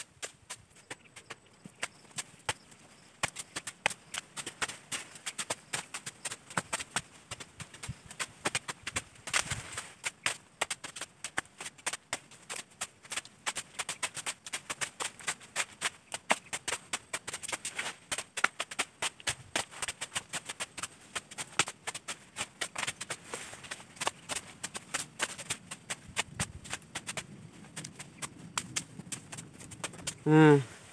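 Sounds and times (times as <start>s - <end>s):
twigs snapping in undergrowth: 7.8s - 13.8s.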